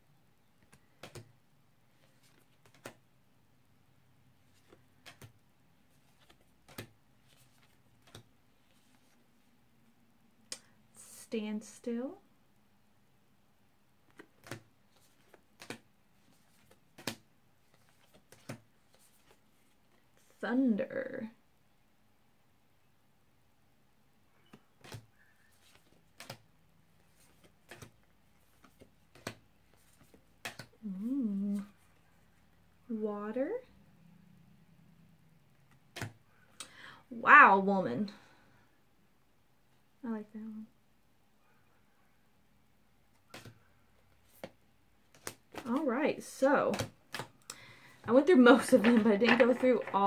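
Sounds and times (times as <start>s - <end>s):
cards tapping and sliding: 0.6s - 1.3s, 2.0s - 3.0s, 4.5s - 5.4s, 6.1s - 9.2s, 14.1s - 19.4s, 24.4s - 26.4s, 27.1s - 30.8s, 35.7s - 36.2s, 43.2s - 43.6s, 44.2s - 45.8s, 46.7s - 50.0s
cards tapping on a table: 48.6s - 50.0s.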